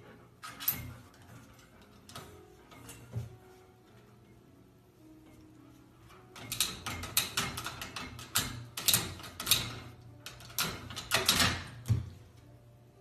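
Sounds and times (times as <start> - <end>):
metal baby gate rattling: 0.4 - 3.4, 6.3 - 12.0
gate latch clicking: 6.4 - 12.0.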